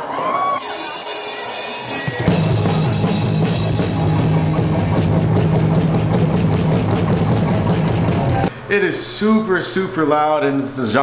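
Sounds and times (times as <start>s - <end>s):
electric guitars: 0.6s - 8.5s
drum kit beat: 0.6s - 8.6s
low bass notes: 2.2s - 8.5s.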